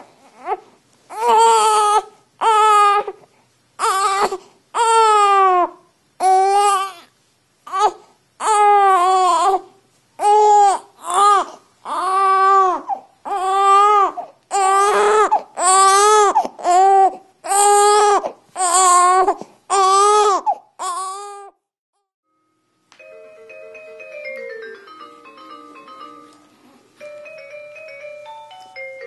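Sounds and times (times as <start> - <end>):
baby crying: 0.0 - 3.2, 3.8 - 7.1, 7.7 - 21.6.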